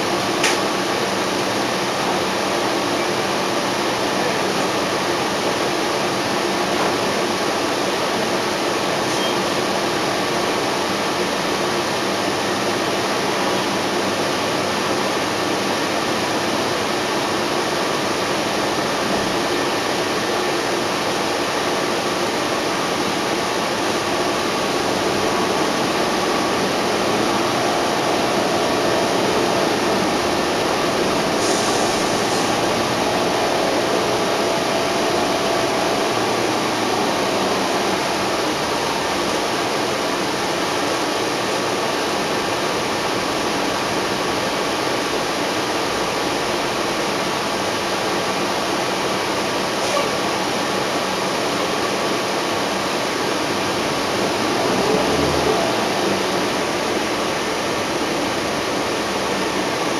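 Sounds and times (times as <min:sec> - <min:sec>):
bus cabin engine noise: 0:00.0 - 0:59.9
higher tone: 0:24.7 - 0:39.5.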